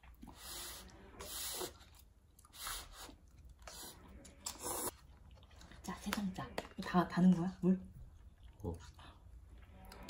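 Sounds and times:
person slurping noodles: 0.3 - 1.9, 2.5 - 4.9
chewing: 1.7 - 6.8, 7.9 - 10.0.

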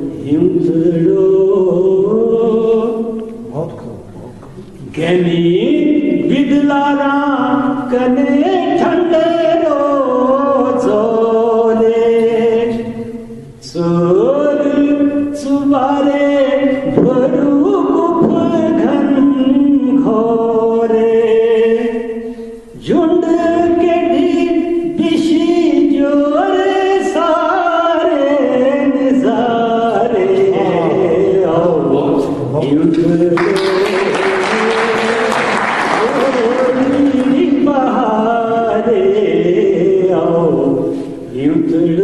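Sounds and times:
man singing: 0.0 - 3.6, 4.3 - 42.0.

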